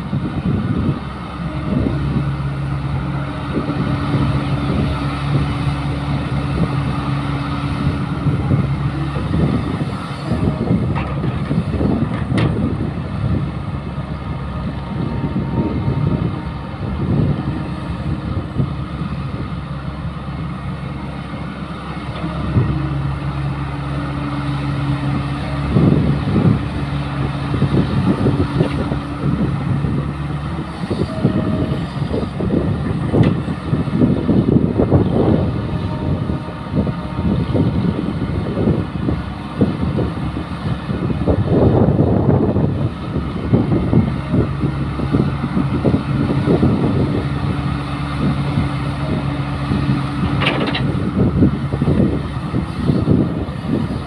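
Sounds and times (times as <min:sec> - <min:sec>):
excavator diesel engine under load: 0:00.0 - 0:54.0
knocks and clatter: 0:50.3 - 0:51.0.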